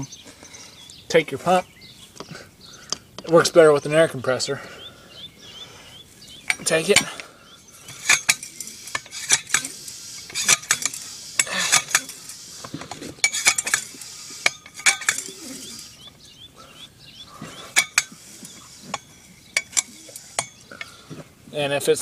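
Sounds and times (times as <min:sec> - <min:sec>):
tire pump metallic clack: 0:06.3 - 0:16.3, 0:17.4 - 0:21.3
tire pump hiss: 0:08.0 - 0:16.1.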